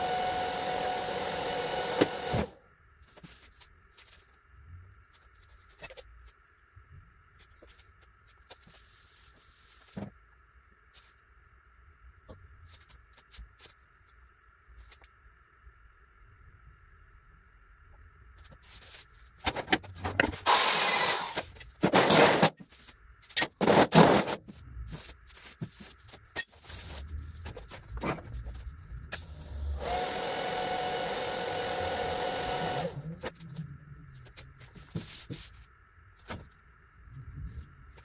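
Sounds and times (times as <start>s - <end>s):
small power tool whirring: 0.0s - 2.6s, 20.4s - 22.5s, 29.2s - 33.2s
loud rasping bursts: 20.4s - 21.4s.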